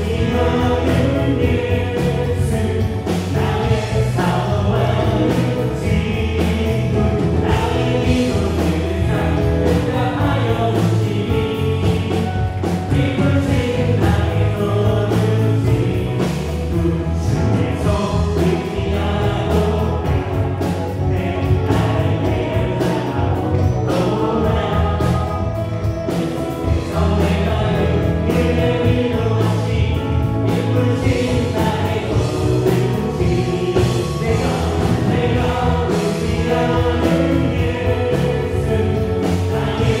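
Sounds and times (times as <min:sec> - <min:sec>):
band playing praise song: 0:00.0 - 0:40.0
voices singing: 0:00.0 - 0:40.0.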